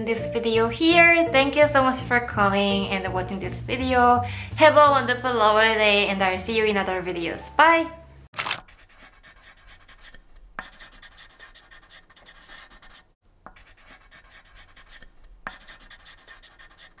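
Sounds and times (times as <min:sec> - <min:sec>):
scratching strokes on a surface: 0:08.6 - 0:17.0.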